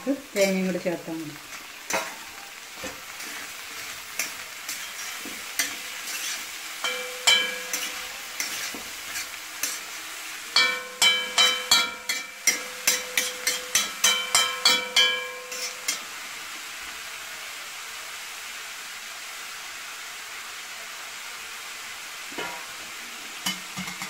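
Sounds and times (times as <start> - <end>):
faint frying sizzle: 0.0 - 24.0
metal spoon knocking on pan: 6.8 - 8.6, 10.6 - 16.0, 23.4 - 24.0.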